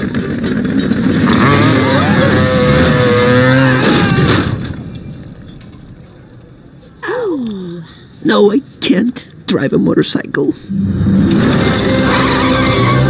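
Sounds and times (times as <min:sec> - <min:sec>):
motorcycle engine revving: 0:00.0 - 0:04.7, 0:10.8 - 0:13.0.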